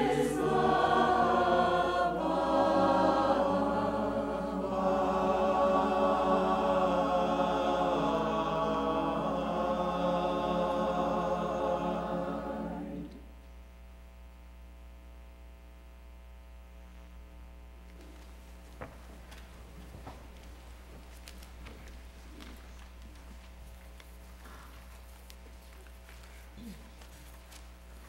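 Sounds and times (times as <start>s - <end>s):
church choir singing: 0.0s - 13.3s.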